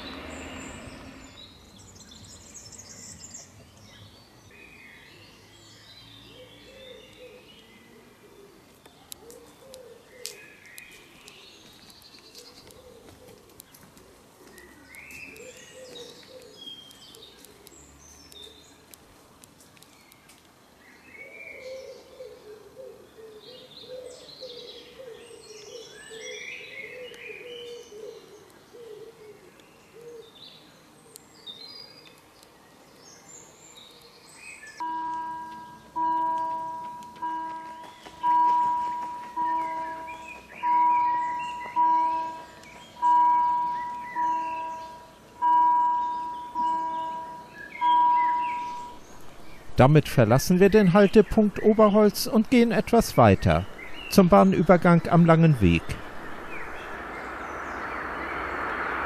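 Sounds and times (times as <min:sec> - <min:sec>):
songbirds singing and chirping: 0:00.0 - 0:59.0
faint clicks: 0:13.4 - 0:20.6.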